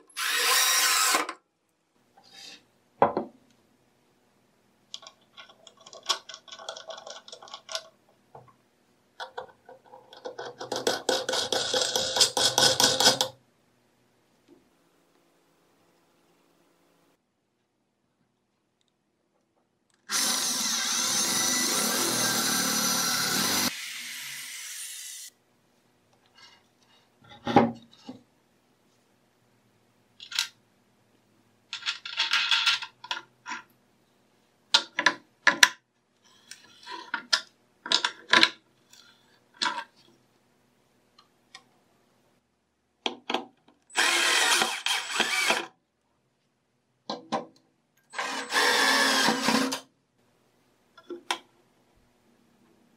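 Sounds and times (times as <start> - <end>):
drill driving screw through metal: 0.0 - 1.4, 20.1 - 25.3, 43.9 - 45.7, 48.1 - 49.8
electric drill boring into wood: 0.2 - 1.3, 20.1 - 25.3, 43.9 - 45.7, 48.2 - 49.8.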